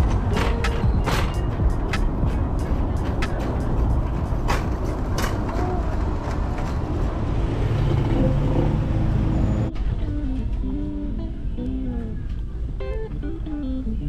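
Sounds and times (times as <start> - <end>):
guitar music: 0.0 - 6.6, 9.7 - 14.0
vehicle road noise rumble: 0.0 - 14.0.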